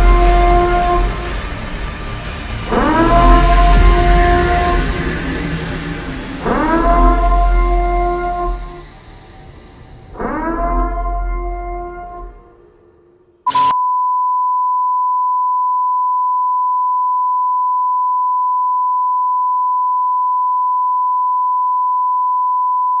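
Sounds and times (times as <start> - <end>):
steady test tone: 13.5 - 14.0.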